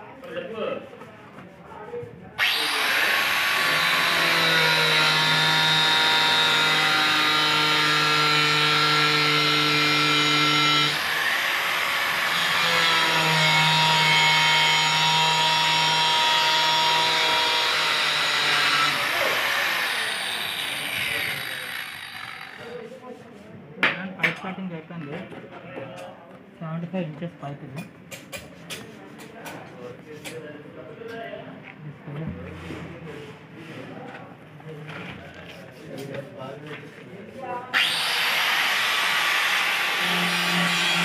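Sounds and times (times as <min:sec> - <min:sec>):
angle grinder cutting plastic pipe: 0:02.4 - 0:22.8, 0:37.8 - 0:41.0.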